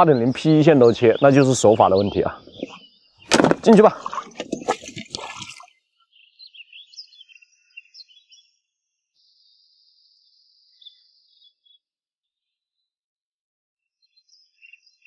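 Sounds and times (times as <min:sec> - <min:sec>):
water dripping and splashing: 0:03.3 - 0:05.8
faint small-bird chirps: 0:05.9 - 0:12.9, 0:13.8 - 0:15.0.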